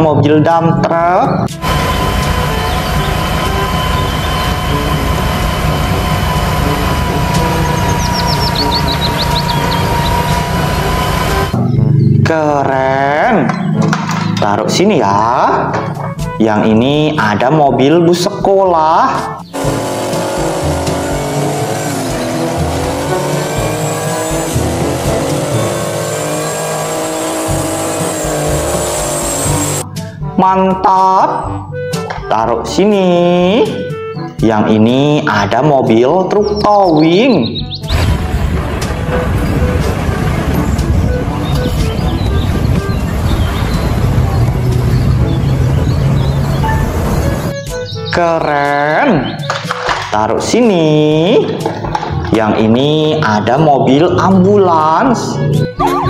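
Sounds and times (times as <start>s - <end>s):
diesel engines rumbling: 1.5s - 18.3s, 19.1s - 30.4s, 37.6s - 56.0s
snow blower throwing snow: 1.6s - 11.6s, 19.6s - 29.8s, 37.9s - 41.0s
steady high hum: 1.6s - 11.6s, 19.6s - 29.8s
tyres squealing: 1.6s - 11.6s, 19.2s - 29.8s.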